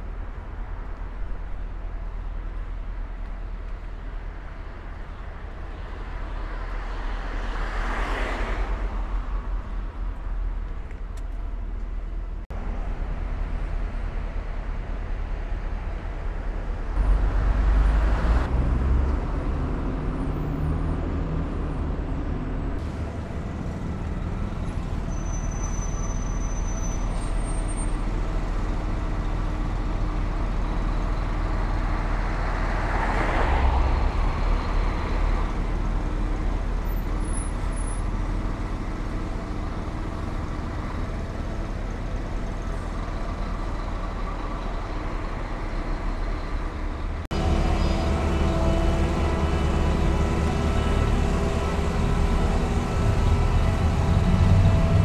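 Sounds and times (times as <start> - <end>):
street traffic rumbling: 0.0 - 55.0
bus engine running: 8.7 - 55.0
steady engine hum with tones: 8.8 - 55.0
vehicle passing loudly: 47.3 - 55.0.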